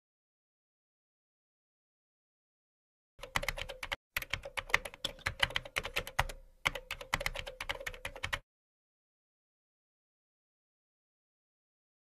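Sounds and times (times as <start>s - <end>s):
keyboard keys clicking: 3.2s - 8.4s.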